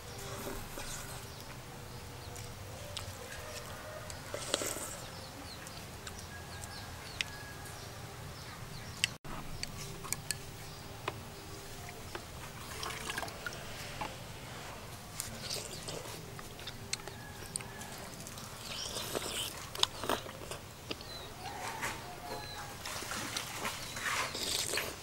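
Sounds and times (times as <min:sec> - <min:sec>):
sipping and slurping: 0:04.2 - 0:05.1, 0:12.6 - 0:14.0, 0:18.3 - 0:21.2, 0:22.9 - 0:25.0.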